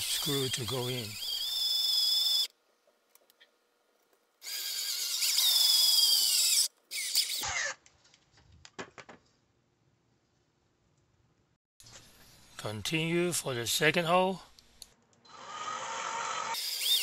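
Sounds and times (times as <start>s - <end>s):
cordless drill whining: 0.0s - 2.5s, 15.3s - 17.0s.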